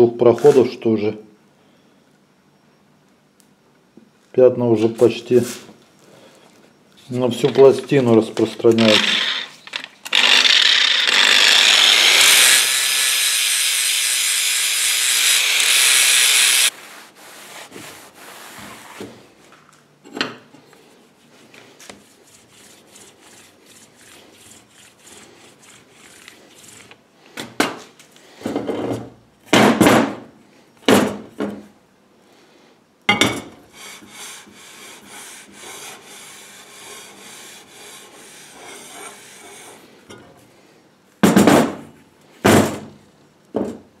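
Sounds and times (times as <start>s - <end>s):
angle grinder grinding steel: 8.7s - 16.7s
metal rubbing on metal: 8.8s - 16.7s, 22.0s - 27.0s, 33.8s - 39.9s.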